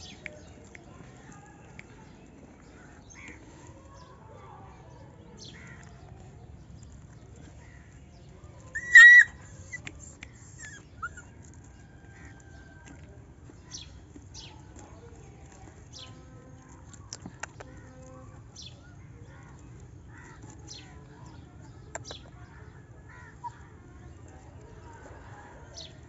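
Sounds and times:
puppy yelp: 0:08.7 - 0:11.6.

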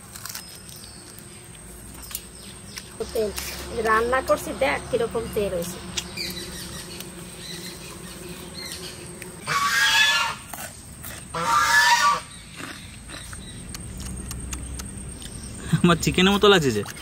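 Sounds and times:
farmyard fowl calling: 0:06.1 - 0:13.7.

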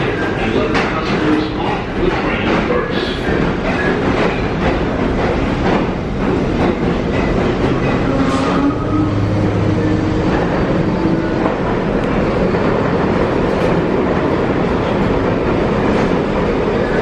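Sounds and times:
subway train noise: 0:00.0 - 0:17.0.

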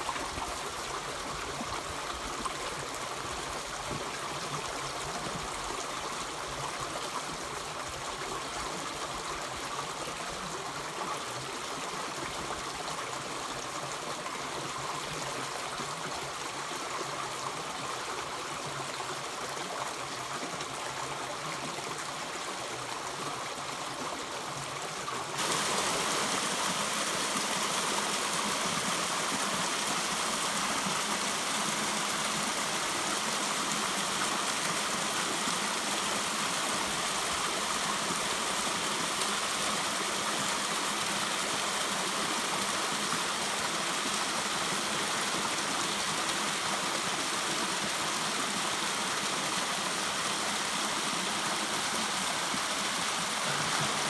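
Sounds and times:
river flowing over rocks: 0:21.8 - 0:54.0.

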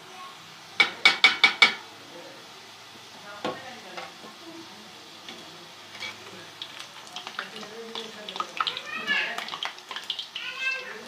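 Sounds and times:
dumplings sizzling in oil: 0:00.0 - 0:11.0
spoon knocking against pan: 0:00.8 - 0:01.8.

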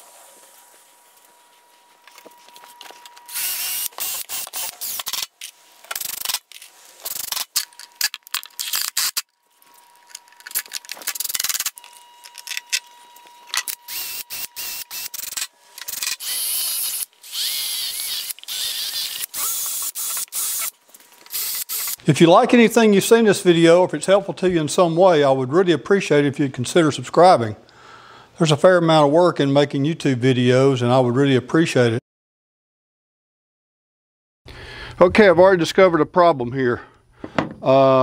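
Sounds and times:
cordless drill into wood: 0:03.3 - 0:05.3, 0:13.6 - 0:22.0
ratcheting clicks: 0:05.9 - 0:09.3, 0:13.5 - 0:22.0.

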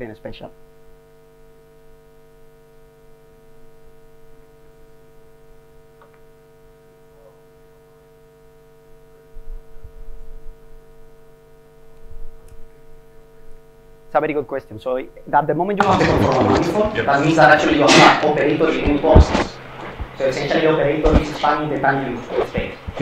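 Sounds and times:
electrical mains hum: 0:00.0 - 0:23.0
low thuds: 0:15.8 - 0:21.7.

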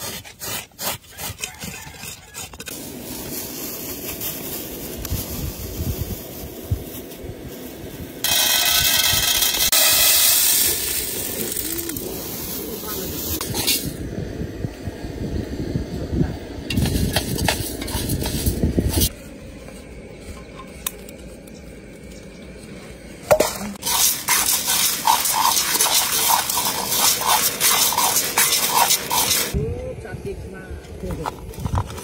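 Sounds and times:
dry beans rattling in metal pot: 0:08.2 - 0:12.0, 0:23.3 - 0:29.6.

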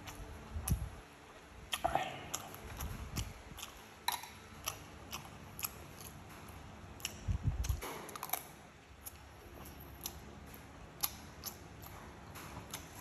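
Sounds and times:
chewing mouth clicks: 0:01.7 - 0:12.1.

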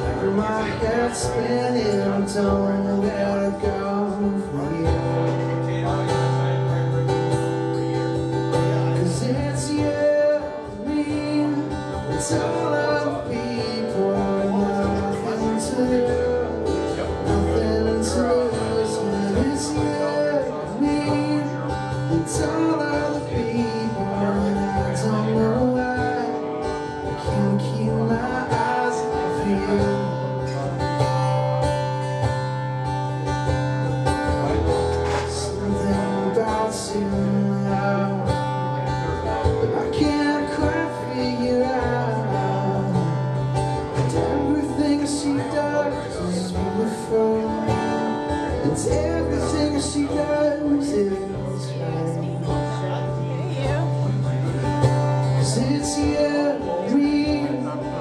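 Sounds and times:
guitar chords: 0:00.0 - 0:58.0.

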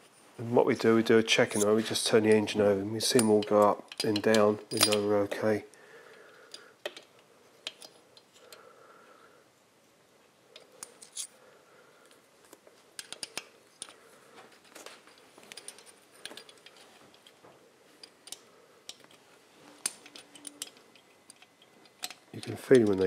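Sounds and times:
metallic clicks and taps: 0:18.0 - 0:19.2, 0:19.8 - 0:23.0.

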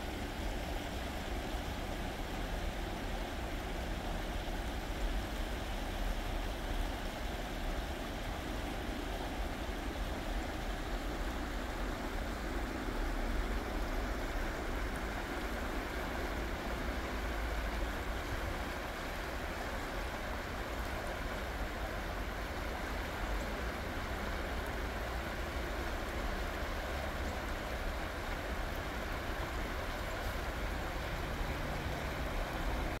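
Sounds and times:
creek water rushing over rocks: 0:00.0 - 0:33.0.

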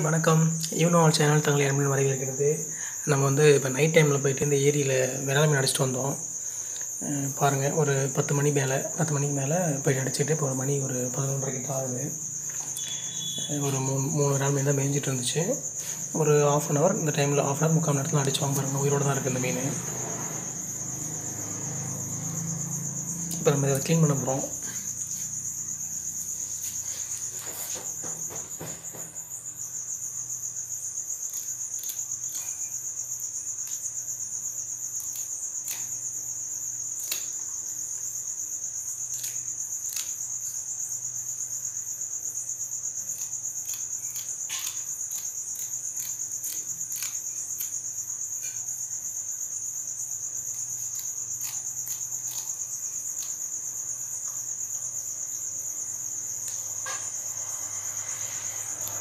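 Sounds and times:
crickets trilling: 0:00.0 - 0:59.0
scissors cutting fish: 0:37.0 - 0:37.4, 0:39.1 - 0:40.2, 0:43.1 - 0:47.8, 0:50.5 - 0:53.4.

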